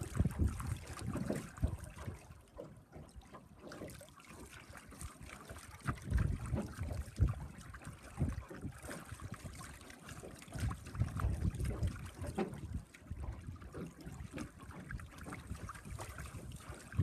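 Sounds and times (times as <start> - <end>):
wind buffeting microphone: 0.0 - 2.2, 5.8 - 8.9, 10.5 - 13.8, 14.8 - 17.0
water lapping against boat hull: 0.0 - 17.0.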